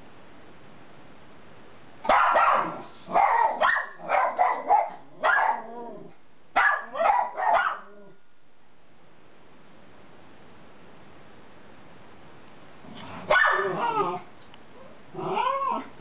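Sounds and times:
small dogs barking high-pitched: 0:02.0 - 0:08.2, 0:13.2 - 0:15.9.

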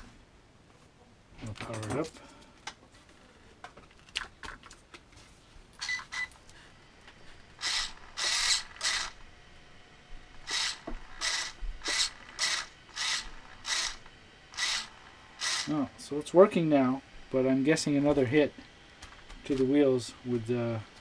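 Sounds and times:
servo whirring in bursts: 0:07.4 - 0:09.3, 0:10.4 - 0:15.9.

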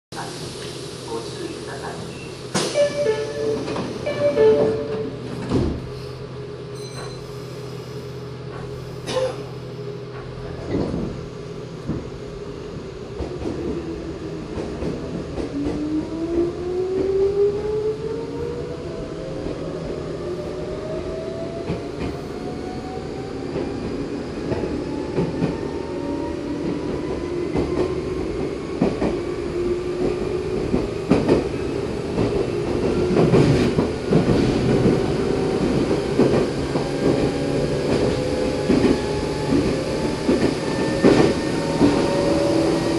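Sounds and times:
train wheels clacking on rails: 0:26.6 - 0:42.9.

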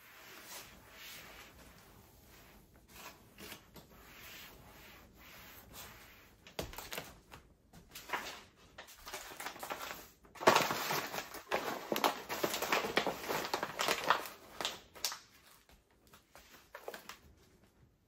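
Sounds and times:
paper rustling: 0:00.3 - 0:04.6, 0:05.6 - 0:17.4
paper crinkling: 0:06.4 - 0:17.4.

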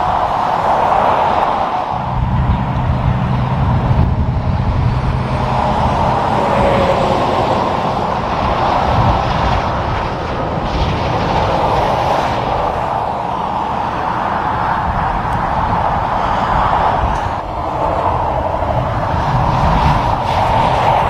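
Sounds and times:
tyre and road noise: 0:00.0 - 0:21.0
truck diesel engine rumble: 0:01.9 - 0:21.0.

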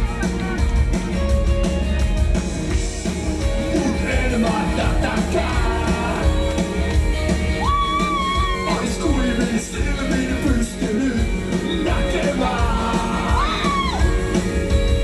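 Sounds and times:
rock band playing live: 0:00.0 - 0:15.0
person singing: 0:03.4 - 0:07.0, 0:07.6 - 0:14.4.

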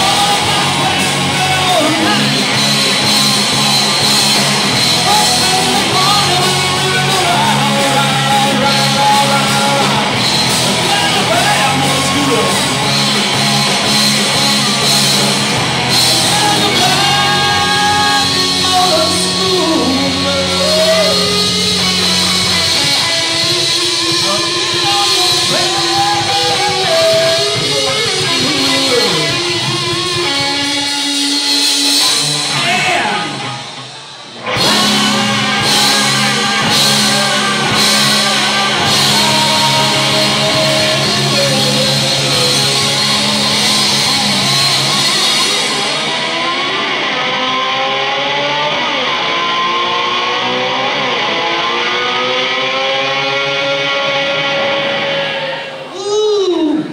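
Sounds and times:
person singing: 0:00.0 - 0:13.1, 0:16.0 - 0:30.1, 0:34.4 - 0:46.4, 0:55.6 - 0:56.9
drums: 0:00.0 - 0:56.9
electric guitars: 0:00.0 - 0:56.9.

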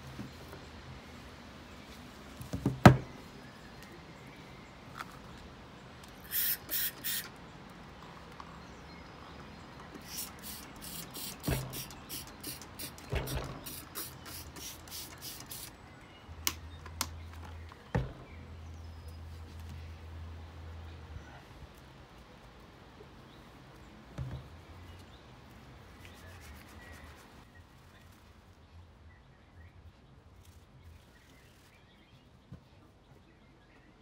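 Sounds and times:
spray bottle squirting: 0:06.2 - 0:07.4, 0:09.9 - 0:15.8.

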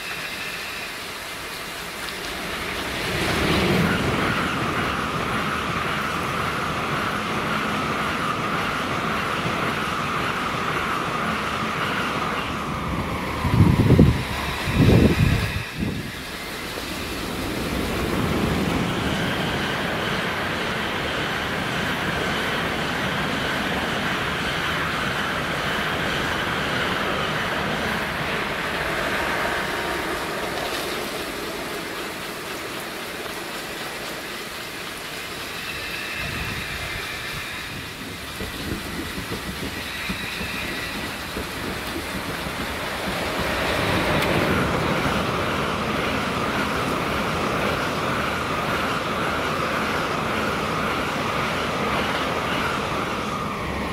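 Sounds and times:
sprinklers spraying water: 0:00.0 - 0:04.5, 0:28.0 - 0:47.8
train rushing past: 0:00.0 - 0:53.9.

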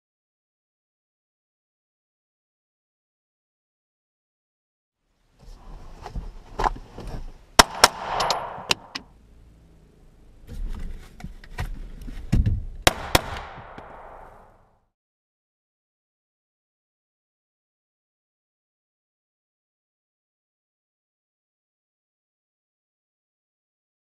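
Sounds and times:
rustling of movement: 0:05.3 - 0:07.6
pistol shots with ringing echo: 0:07.6 - 0:09.0, 0:12.9 - 0:14.5.

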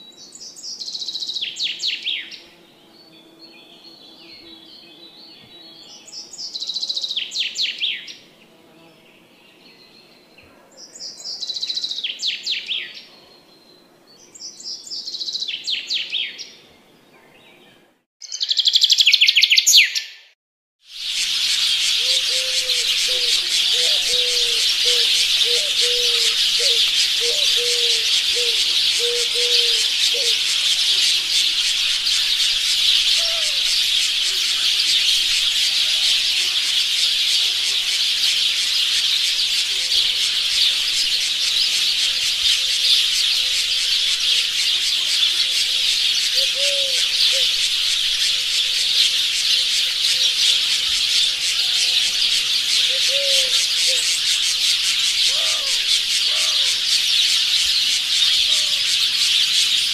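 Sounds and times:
high-pitched jungle chorus: 0:20.9 - 0:59.9
rising calls: 0:20.9 - 0:59.9
low bird calls: 0:21.2 - 0:45.0, 0:46.2 - 0:51.8, 0:52.7 - 0:56.9.

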